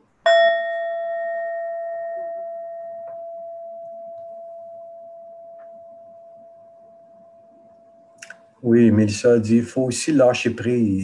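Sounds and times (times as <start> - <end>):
singing bowl ringing: 0.2 - 8.6.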